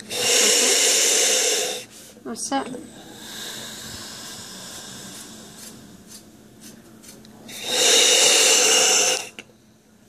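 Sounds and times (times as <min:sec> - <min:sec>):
valve hissing: 0:00.0 - 0:02.0, 0:07.5 - 0:09.4.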